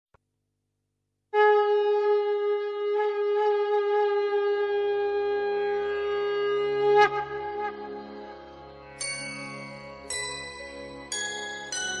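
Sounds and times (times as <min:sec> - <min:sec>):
long held wind instrument note: 0:01.4 - 0:08.9.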